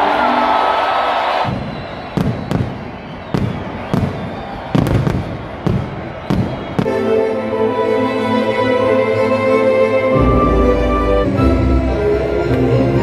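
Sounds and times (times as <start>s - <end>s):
music: 0.0s - 1.4s, 6.8s - 13.0s
firework bangs: 1.4s - 7.0s.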